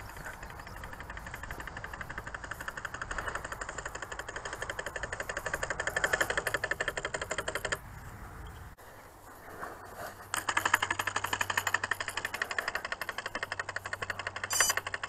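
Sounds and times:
rudder actuator clicking rapidly: 0.0s - 7.8s, 10.3s - 15.0s.

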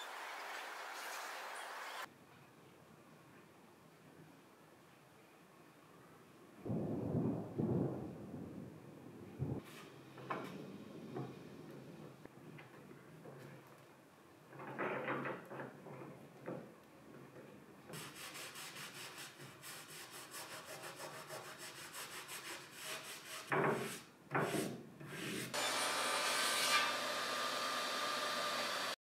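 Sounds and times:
paper towel rubbing on wood: 18.0s - 25.5s
table saw running with whine: 25.6s - 29.0s.

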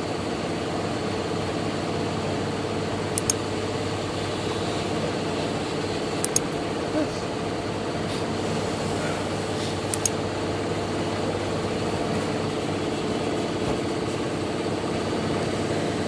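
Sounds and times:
motor humming: 2.0s - 16.0s
light clicks: 3.1s - 3.4s, 6.2s - 6.5s, 9.9s - 10.2s.

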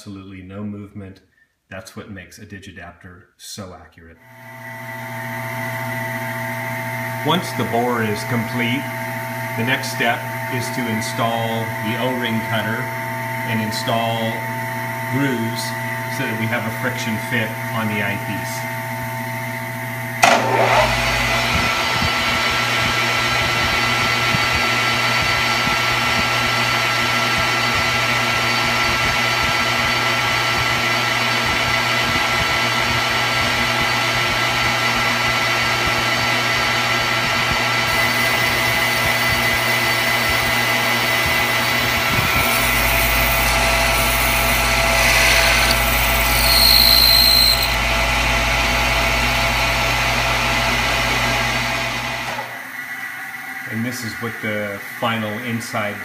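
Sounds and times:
electrical hum: 4.2s - 52.8s
metal lathe whine: 4.3s - 56.0s
deeper hum: 6.7s - 52.3s
high-pitched cutting squeal: 41.6s - 48.2s.

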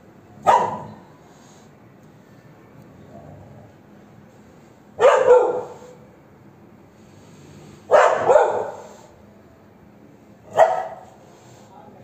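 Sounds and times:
dog barking: 0.4s - 1.0s, 5.0s - 6.0s, 7.9s - 9.1s, 10.5s - 11.2s.

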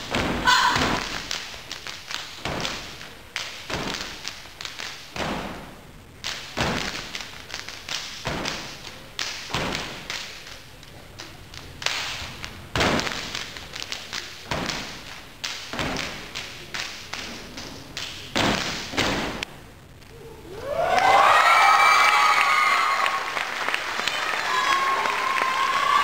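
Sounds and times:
hand claps and slaps: 0.0s - 5.5s, 6.2s - 10.6s, 11.5s - 19.5s.

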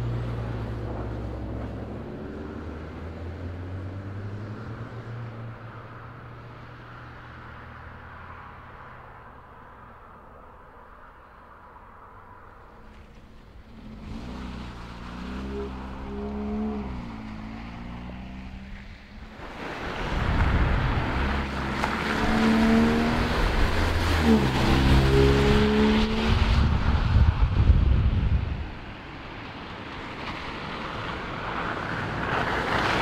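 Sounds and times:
car engine shifting gears: 12.9s - 27.2s
tyres hissing on wet road: 13.7s - 27.5s, 28.6s - 33.0s.

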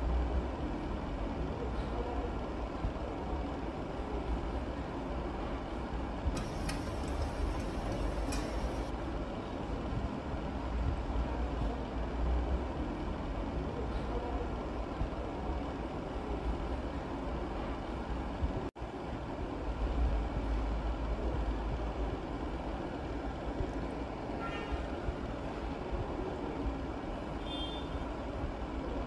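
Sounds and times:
tap running: 6.4s - 8.9s.

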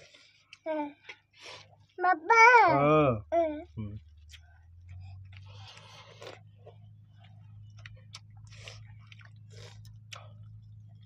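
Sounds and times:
person chewing food: 0.0s - 2.0s, 3.7s - 11.0s
steady low hum: 3.2s - 11.0s.

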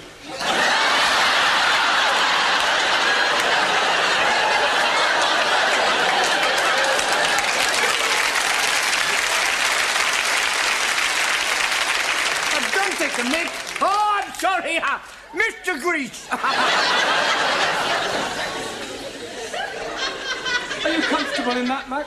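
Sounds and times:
audience laughter: 0.2s - 9.4s, 16.2s - 22.0s
audience applauding: 0.5s - 14.7s.

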